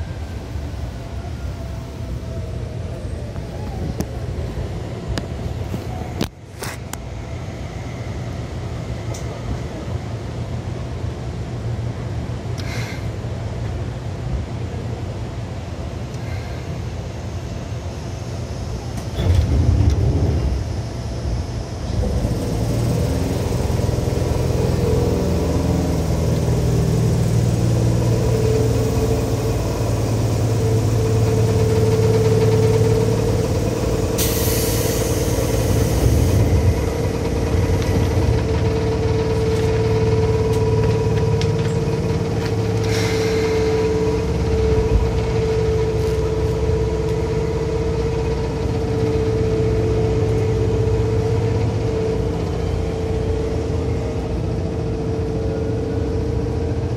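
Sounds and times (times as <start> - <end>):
train wheels rumbling: 0.0 - 56.9
train motor whine: 17.1 - 56.9.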